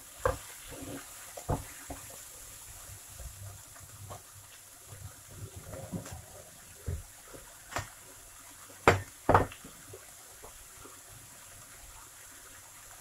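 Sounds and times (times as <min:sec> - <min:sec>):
vegetables frying in oil: 0:00.0 - 0:13.0
sharp kitchen knocks: 0:08.8 - 0:09.6.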